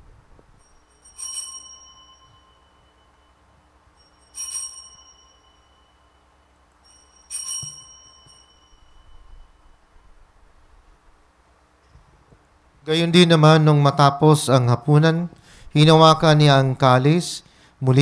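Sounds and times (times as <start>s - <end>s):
altar bells ringing: 0.6s - 10.2s.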